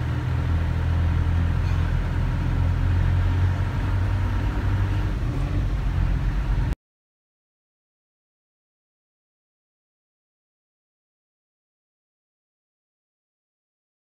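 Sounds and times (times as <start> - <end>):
road noise: 0.0 - 6.8
van engine rumble: 0.0 - 6.8.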